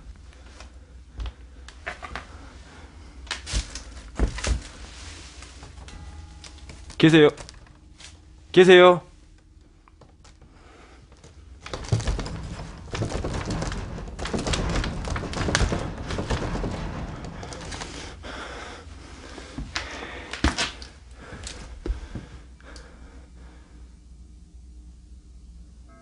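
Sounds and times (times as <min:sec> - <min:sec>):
door shaking thunks: 0:11.1 - 0:19.7
door knob rattling: 0:11.6 - 0:18.0.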